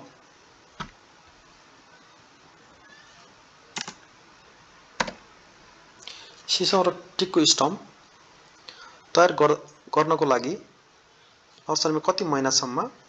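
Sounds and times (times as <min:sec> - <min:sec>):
low steady hiss: 0:00.0 - 0:13.0
computer mouse clicks: 0:03.8 - 0:04.0, 0:05.0 - 0:05.2.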